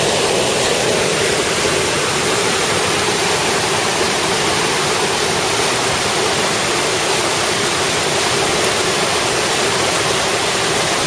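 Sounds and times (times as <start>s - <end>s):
creek rushing over rapids: 0.0s - 11.0s.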